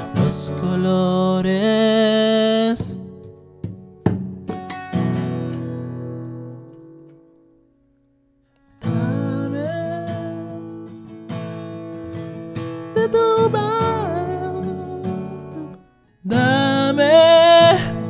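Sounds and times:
acoustic guitar strumming: 0.0 - 7.8, 8.4 - 18.0.

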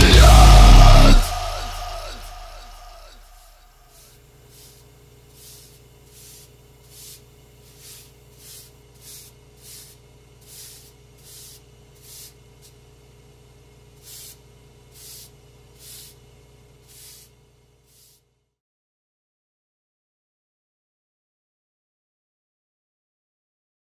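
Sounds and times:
steady low hum: 0.0 - 18.4.

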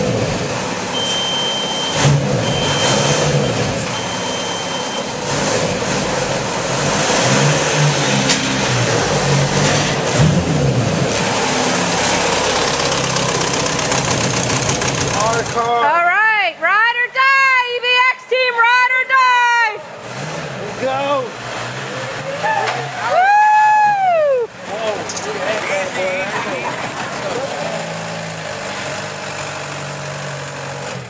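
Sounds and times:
car engine revving: 0.0 - 15.8, 19.8 - 31.0.

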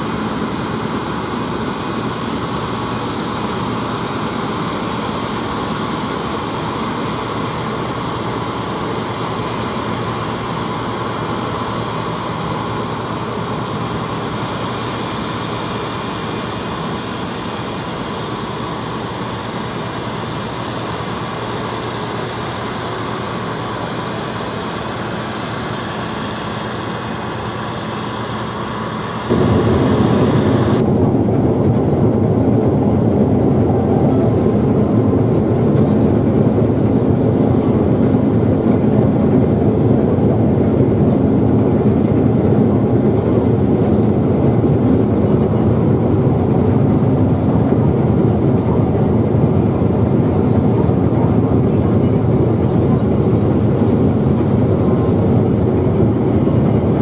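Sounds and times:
combine harvester droning: 0.0 - 57.0
deep rumble inside cab: 26.8 - 57.0.

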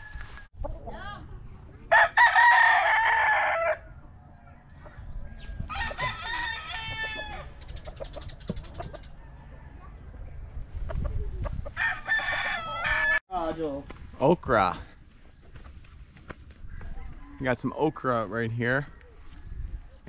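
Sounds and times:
rooster crowing: 0.0 - 0.5, 1.9 - 4.0, 5.3 - 7.5, 11.8 - 13.2, 16.9 - 18.0.

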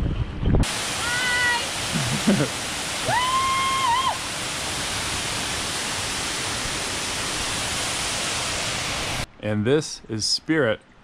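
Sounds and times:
waterfall rushing: 0.6 - 9.3.

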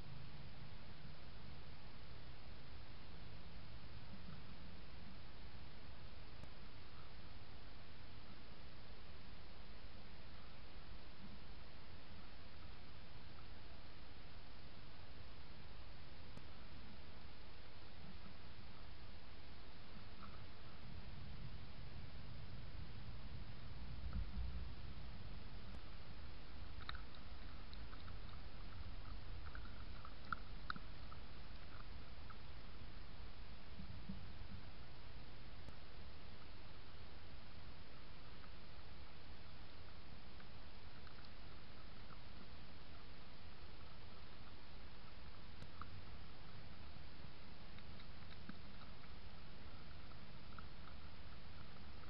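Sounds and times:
camera hum and hiss: 0.0 - 52.0
foxes chewing crunchily: 26.6 - 32.5.

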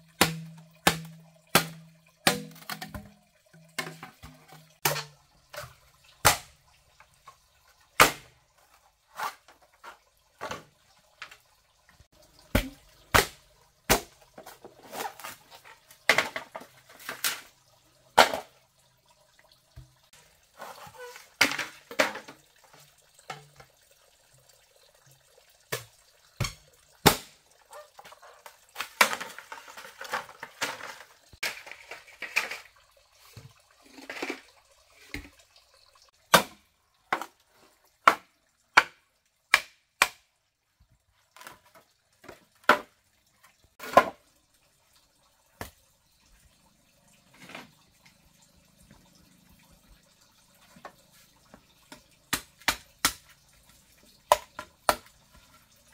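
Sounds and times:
machete chopping bamboo: 0.2 - 3.1, 6.2 - 6.5, 8.0 - 8.3, 12.5 - 14.2, 36.3 - 36.6, 38.8 - 40.2, 52.3 - 53.3.

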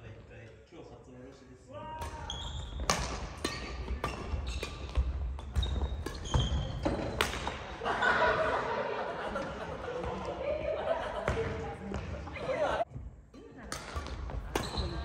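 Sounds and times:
racket hitting shuttlecock: 2.0 - 7.8, 13.6 - 15.0
shoe squeaks on wooden floor: 3.6 - 7.2.

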